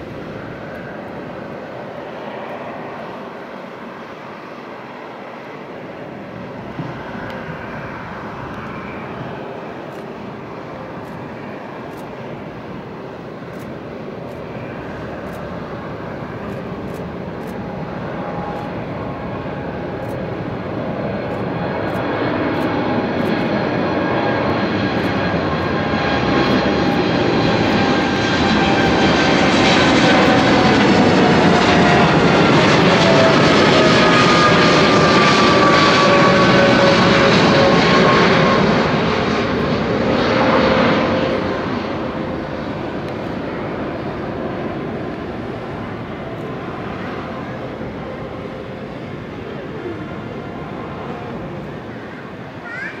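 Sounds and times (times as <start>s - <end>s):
jet engine rumble: 0.0s - 53.0s
jet engine whine: 0.0s - 53.0s.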